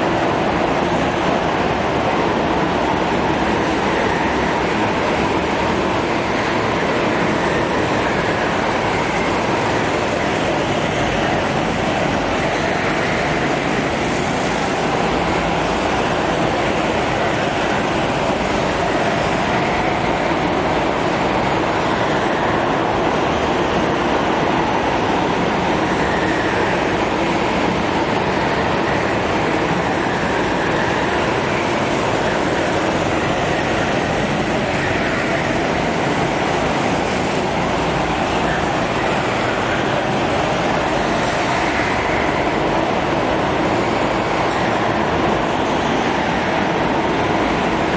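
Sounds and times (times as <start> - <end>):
go-kart engines droning: 0.0 - 47.9.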